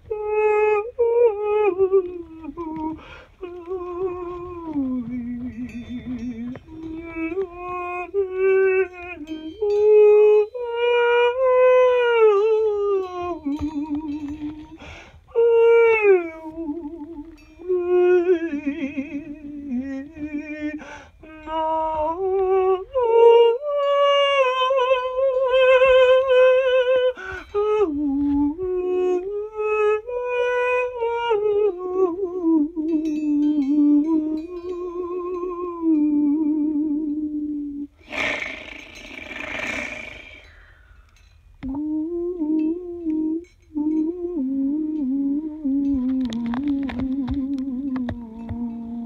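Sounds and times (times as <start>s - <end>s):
person humming: 0.0s - 40.6s, 41.6s - 49.0s
harsh hiss: 38.0s - 40.5s.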